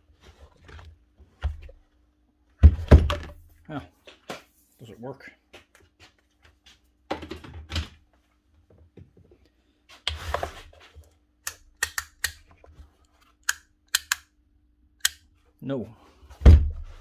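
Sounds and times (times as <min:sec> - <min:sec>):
trigger switch clicking: 0:13.4 - 0:14.3, 0:15.0 - 0:15.2.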